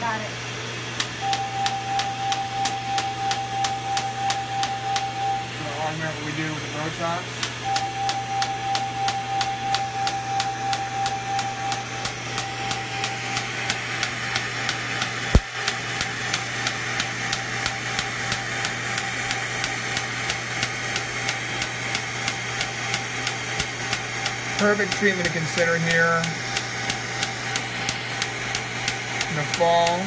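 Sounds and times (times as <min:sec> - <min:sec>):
laser pulses snapping: 0:07.4 - 0:30.0.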